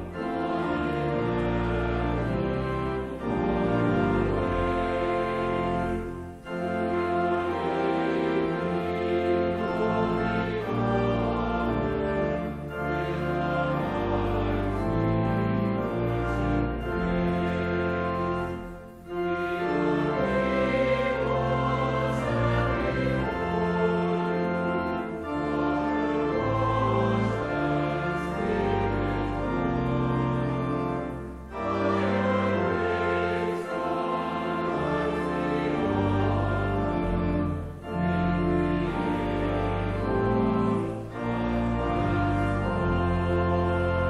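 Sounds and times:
congregation singing a hymn: 0.0 - 44.0
pipe organ: 0.0 - 44.0.

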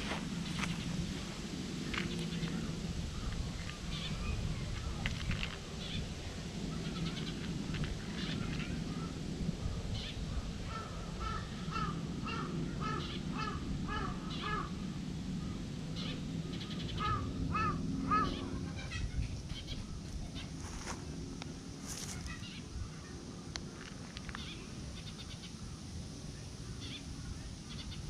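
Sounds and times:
low background noise: 0.0 - 28.0
crow cawing: 10.7 - 14.8, 16.9 - 18.6.

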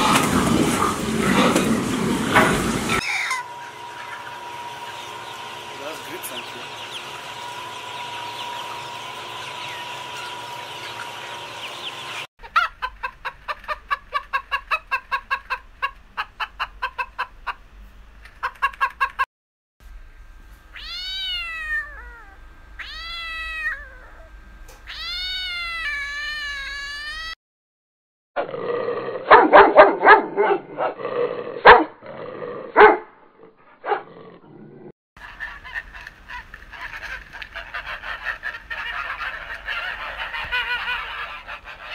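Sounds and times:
chickens murmuring: 0.0 - 17.7, 35.2 - 41.9
hens clucking rapidly: 2.8 - 19.2, 35.2 - 41.9
cat meowing: 20.8 - 24.3, 24.9 - 27.4.

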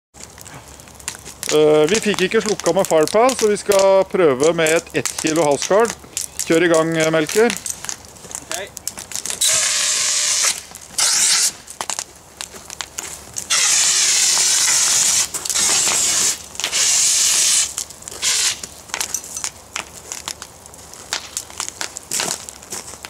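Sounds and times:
crackles and clicks: 0.1 - 23.0
fire extinguisher hissing bursts: 13.5 - 18.6.

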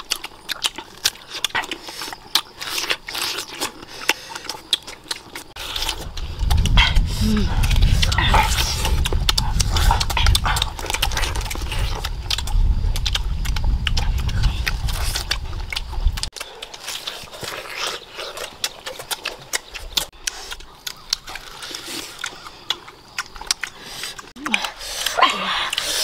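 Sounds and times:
mouth clicks and lip smacks: 0.0 - 26.0
people chewing mangoes: 0.0 - 26.0
low rumble: 5.6 - 16.3.

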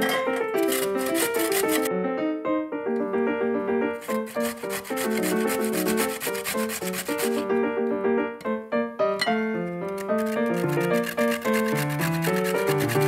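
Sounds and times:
potato grating on metal grater: 0.0 - 1.9, 4.0 - 7.5, 9.9 - 13.0
background piano music: 0.0 - 13.0.

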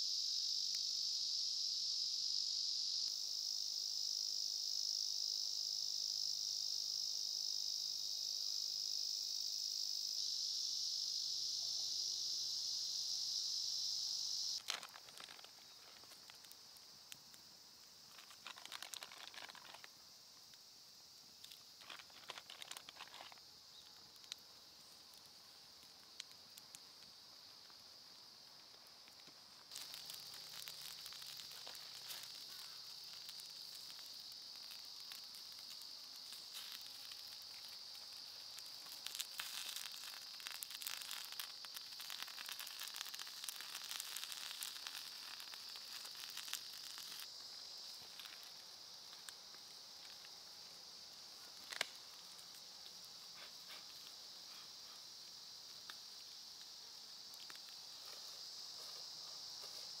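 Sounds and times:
high insect drone: 0.0 - 60.0
sausages sizzling and spitting: 8.4 - 20.6, 21.3 - 60.0
campfire crackling: 10.2 - 60.0.

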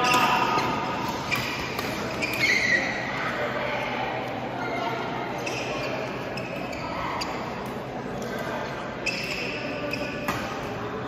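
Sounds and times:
shoe squeaks on court floor: 1.2 - 3.0, 5.4 - 7.6, 9.0 - 10.6.

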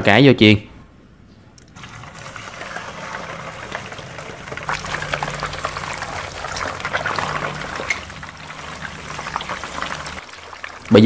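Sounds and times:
fish sizzling in hot oil: 1.8 - 11.0.

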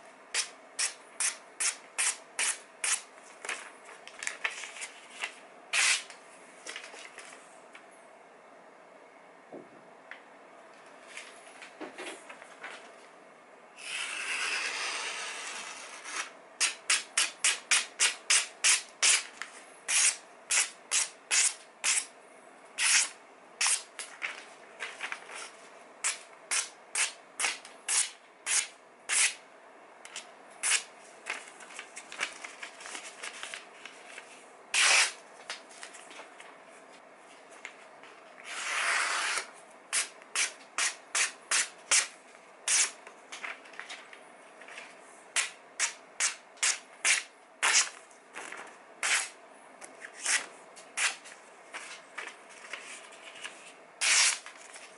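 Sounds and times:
paper rustling: 3.2 - 6.0, 6.6 - 7.4, 24.0 - 25.6, 30.7 - 36.6, 47.6 - 49.3, 50.0 - 54.9.

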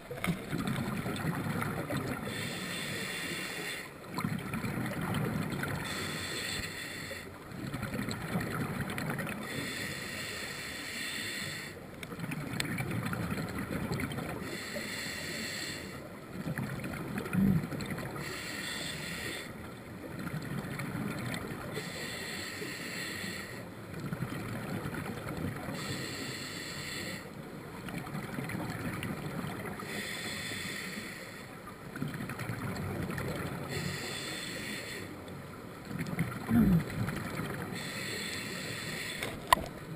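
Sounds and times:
exhaled air bubbling: 0.0 - 3.1, 35.9 - 38.1
regulator inhale hiss: 2.2 - 4.0, 5.8 - 7.4, 9.4 - 11.8, 14.4 - 16.1, 18.2 - 19.6, 21.7 - 23.7, 25.7 - 27.4, 29.8 - 31.6, 33.7 - 35.2, 37.7 - 39.5.

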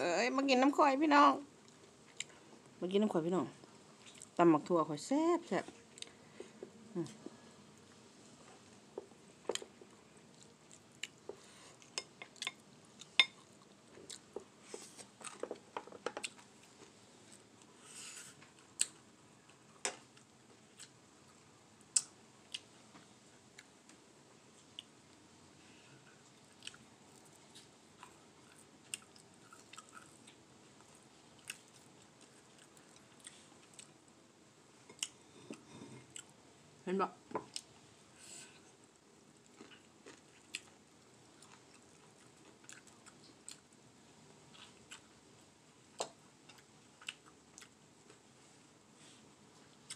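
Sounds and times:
person chewing food: 1.6 - 2.5, 4.0 - 4.4, 8.4 - 22.7, 26.1 - 34.0, 34.8 - 36.4, 38.9 - 43.8, 44.5 - 48.2, 49.6 - 49.9.

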